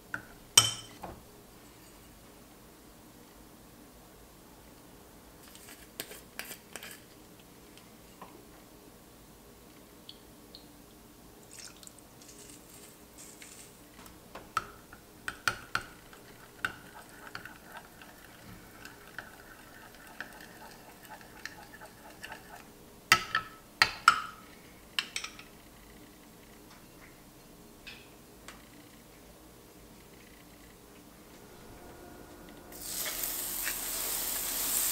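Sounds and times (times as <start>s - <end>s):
spoon stirring in glass bowl: 15.3s - 22.7s.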